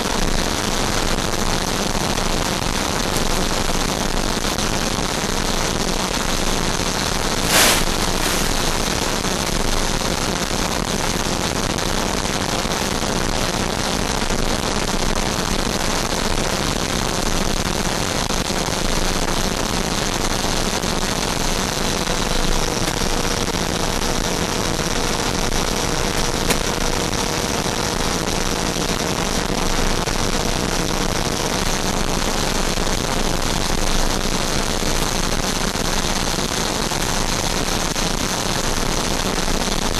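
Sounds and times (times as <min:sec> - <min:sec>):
electric ducted-fan noise: 0:07.2 - 0:09.4
rushing airflow: 0:07.3 - 0:09.2.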